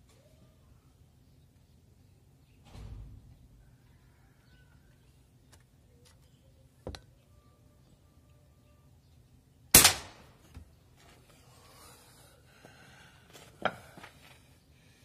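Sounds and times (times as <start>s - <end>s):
air rifle shot: 9.7s - 10.4s.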